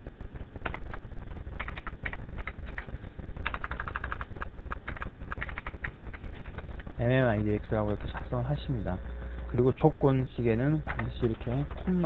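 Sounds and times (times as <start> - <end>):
faint low hum: 0.0 - 12.0
keyboard keys clicking: 1.6 - 6.6, 10.9 - 12.0.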